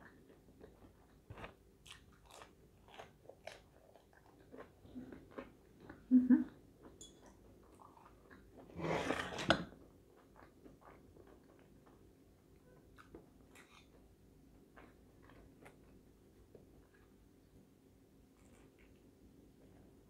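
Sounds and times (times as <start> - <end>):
crunchy food chewing: 0.0 - 6.0, 9.8 - 12.1, 12.8 - 17.2.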